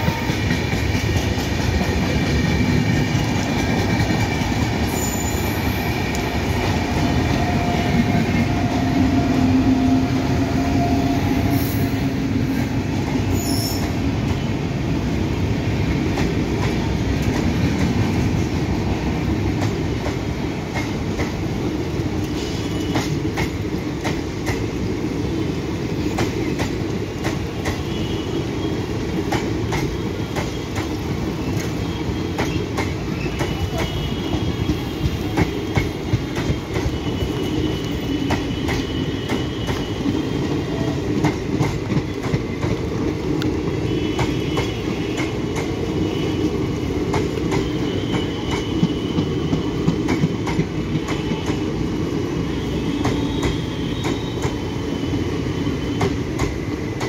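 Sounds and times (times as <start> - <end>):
train wheels rumbling on rail: 0.0 - 57.0
faint high wheel squeal: 4.9 - 5.9, 13.3 - 13.9.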